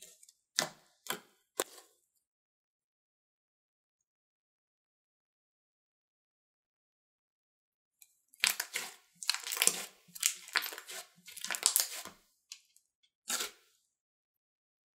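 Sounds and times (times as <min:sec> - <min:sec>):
slime squishing: 0:08.3 - 0:12.7, 0:13.3 - 0:13.7.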